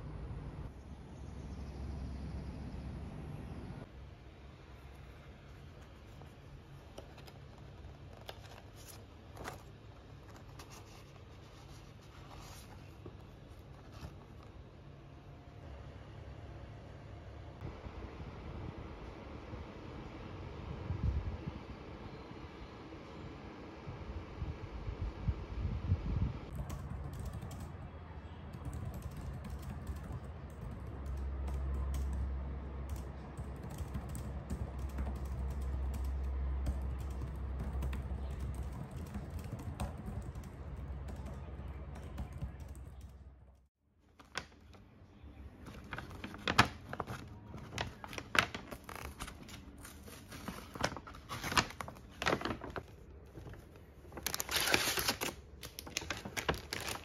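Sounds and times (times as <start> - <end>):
low steady hum: 0.0 - 57.0
laptop keyboard typing: 26.5 - 43.2
paper bag rustling: 45.6 - 57.0.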